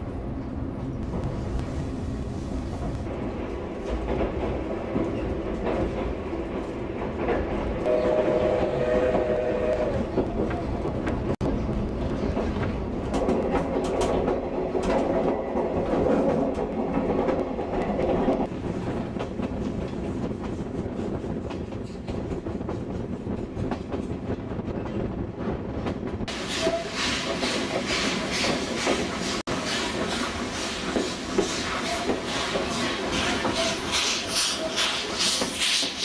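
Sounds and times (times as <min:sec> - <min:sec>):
steam locomotive chuffing: 0:26.3 - 0:36.0.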